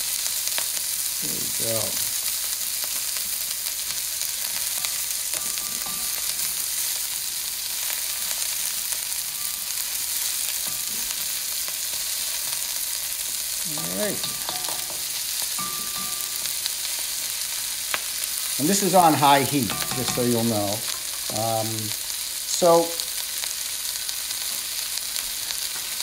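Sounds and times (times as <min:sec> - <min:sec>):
vegetables sizzling in a wok: 0:00.0 - 0:26.0
spatula stirring in a wok: 0:02.2 - 0:22.4.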